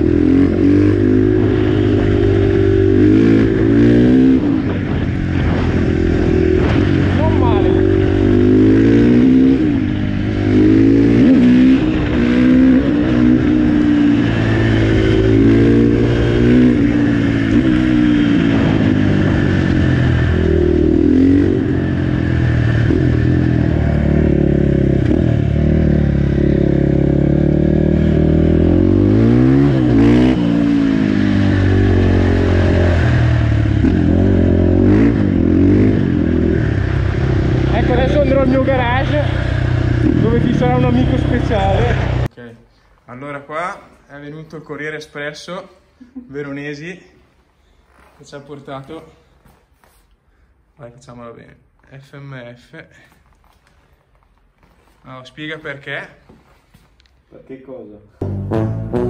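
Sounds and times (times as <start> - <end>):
motorcycle engine revving: 0.0 - 42.3, 58.2 - 59.0.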